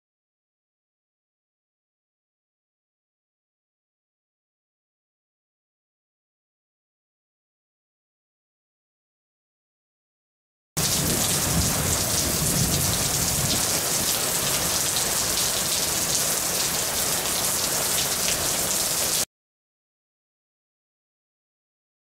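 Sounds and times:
heavy rain pouring: 0:10.8 - 0:19.3.

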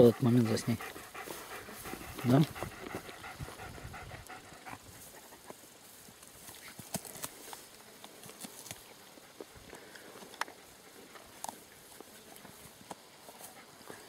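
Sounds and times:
dog panting: 0:00.0 - 0:05.6
dog sniffing: 0:00.0 - 0:05.6
rustling in long grass: 0:00.6 - 0:14.0.

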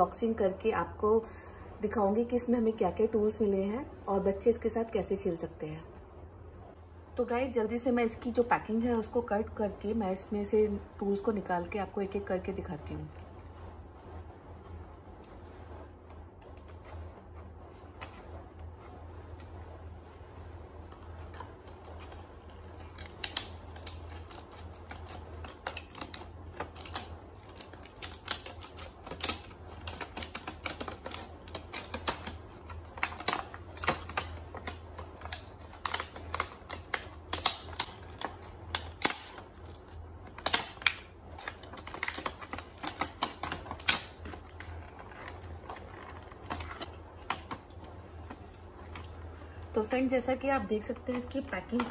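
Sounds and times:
plastic wrap crinkling: 0:19.6 - 0:51.9.

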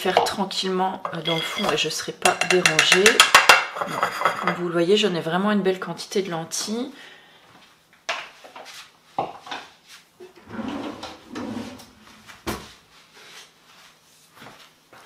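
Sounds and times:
utensils rummaging clatter: 0:01.1 - 0:01.9
drawer opening and shutting: 0:10.3 - 0:12.7.

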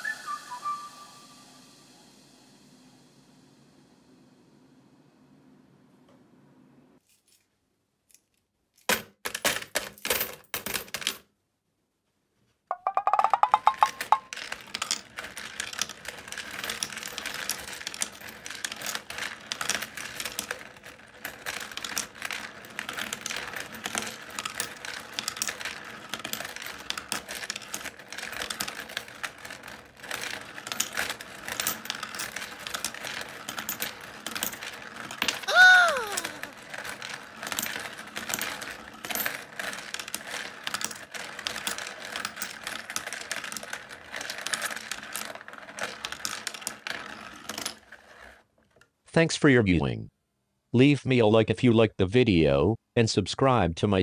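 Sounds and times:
coins clattering through sorter: 0:08.8 - 0:11.2, 0:13.1 - 0:48.4.

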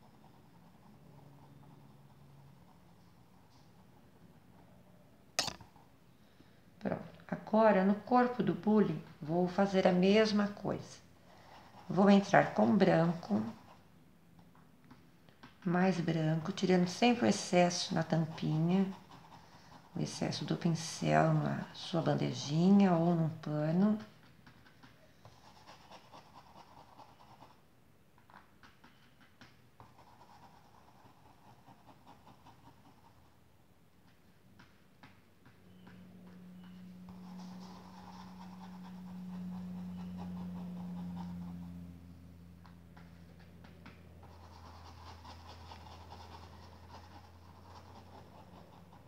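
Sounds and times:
paintbrush scratching on fabric: 0:00.0 - 0:04.5, 0:07.9 - 0:14.0, 0:15.6 - 0:27.6, 0:28.2 - 0:34.3, 0:35.7 - 0:49.0.

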